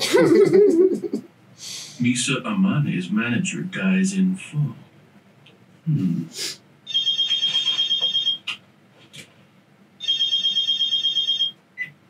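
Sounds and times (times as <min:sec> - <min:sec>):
phone ringtone trill: 0:06.9 - 0:08.4, 0:10.0 - 0:11.6.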